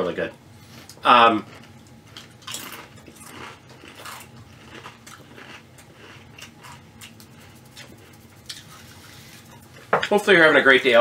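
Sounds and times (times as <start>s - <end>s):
person crunching potato chips: 1.0s - 9.7s.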